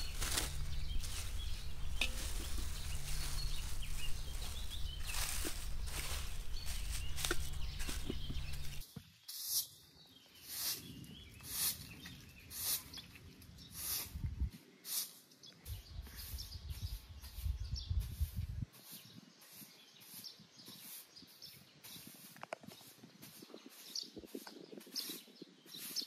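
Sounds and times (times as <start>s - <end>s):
birds chirping: 0.0s - 8.8s
plastic cling film crinkling: 0.0s - 8.8s
broom sweeping brick paving: 0.0s - 9.7s, 10.4s - 12.9s, 17.4s - 24.2s.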